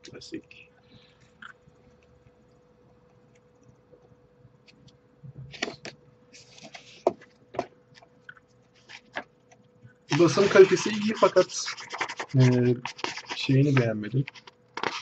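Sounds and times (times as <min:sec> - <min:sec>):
paper and cardboard rustling: 0:05.5 - 0:07.3, 0:10.1 - 0:15.0
books tapping and knocking: 0:07.0 - 0:07.7.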